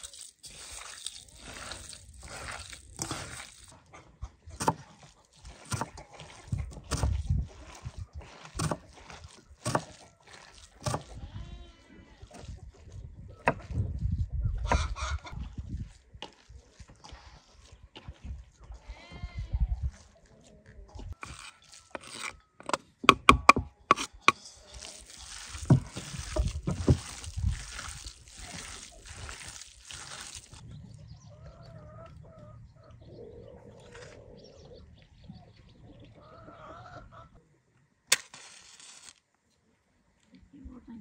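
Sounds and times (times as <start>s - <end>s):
knife scraping wooden board: 0.0s - 3.8s, 4.6s - 11.2s, 21.2s - 30.6s
hands squelching kneading meat: 0.0s - 13.8s, 15.4s - 18.8s, 21.3s - 21.9s, 24.3s - 30.7s
hens clucking: 2.7s - 10.2s, 14.6s - 15.6s, 30.6s - 37.4s
match striking and flaring: 38.1s - 39.3s.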